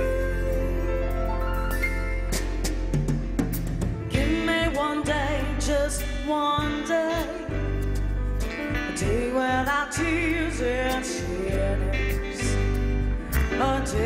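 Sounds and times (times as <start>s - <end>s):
woman singing with vibrato: 0.0s - 1.4s, 4.1s - 7.8s, 8.9s - 12.7s, 13.5s - 14.0s
live band playing: 0.0s - 14.0s.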